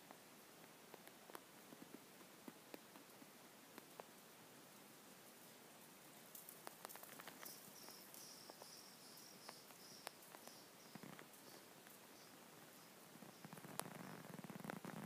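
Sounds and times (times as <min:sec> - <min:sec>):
faint clicks: 0:00.0 - 0:04.2, 0:06.3 - 0:15.0
faint high chirp: 0:07.2 - 0:14.4.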